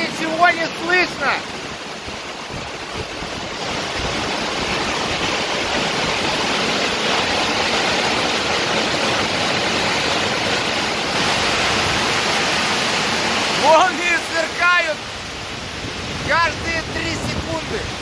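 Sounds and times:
heavy rain pouring: 0.0 - 18.0.

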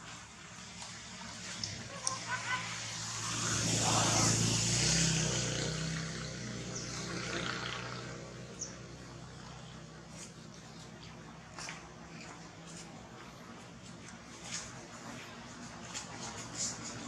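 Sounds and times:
passing vehicle engine: 1.0 - 12.5.

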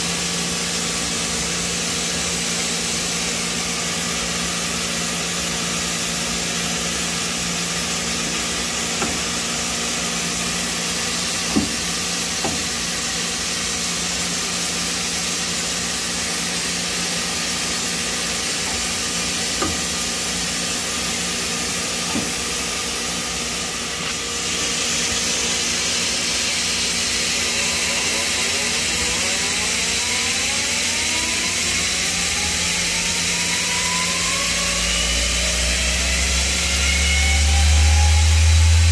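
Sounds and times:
lathe mechanical hum: 0.0 - 38.9
spindle whine: 3.1 - 38.9.

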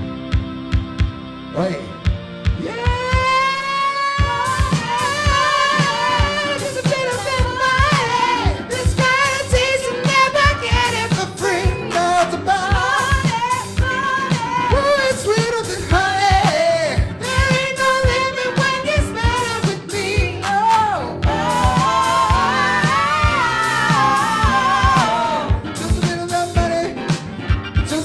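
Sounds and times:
soul-funk band playing: 0.0 - 28.0
lead and backing vocals singing: 2.6 - 27.2
low beat thumps: 21.2 - 26.8.

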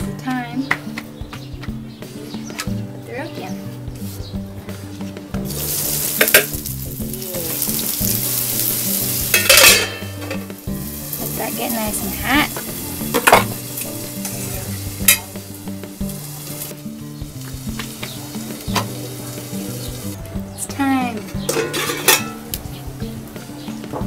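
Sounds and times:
oil sizzling in a wok: 5.4 - 20.2
metal utensils clicking: 5.9 - 6.6, 8.7 - 10.5, 21.3 - 22.6.

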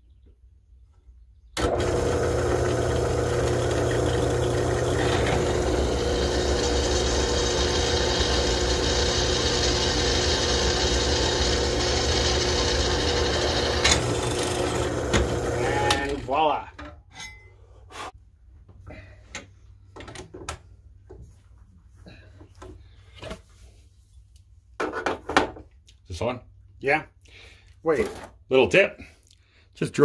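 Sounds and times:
bit drilling into metal: 1.6 - 16.2
drill press motor running: 1.6 - 16.4.

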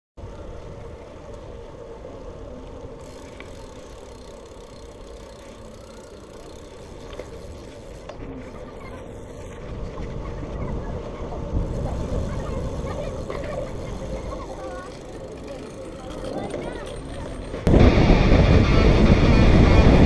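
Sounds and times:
bike tyres rolling on asphalt: 0.2 - 17.8
faint ticks: 2.6 - 8.2
wind rumble on microphone: 7.0 - 15.1, 17.5 - 20.0.

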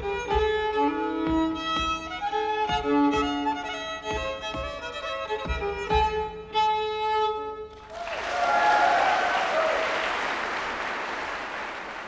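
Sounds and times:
solo fiddle folk tune: 0.0 - 7.8
audience applause: 7.8 - 12.0.

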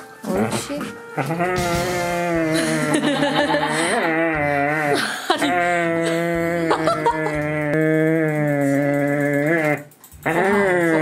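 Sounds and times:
dog crying moans: 3.8 - 11.0.

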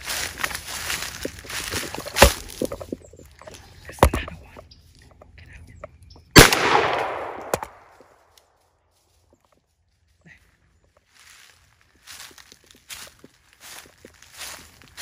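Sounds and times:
footsteps crunching dry leaves: 0.0 - 4.0, 7.8 - 15.0
loud gunshot with echo: 6.4 - 7.9.

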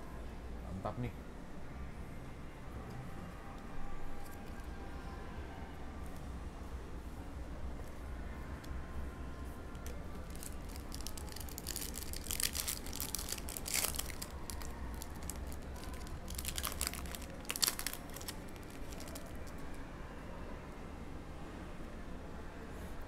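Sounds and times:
low steady hum: 0.0 - 23.0
foil pack crinkling: 10.2 - 19.6.

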